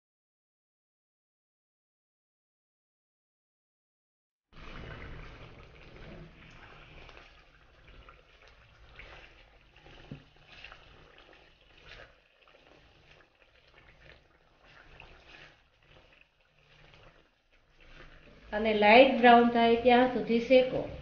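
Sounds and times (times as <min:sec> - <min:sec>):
spatula scraping: 0:04.6 - 0:19.2
faint sizzling in a wok: 0:04.8 - 0:21.0.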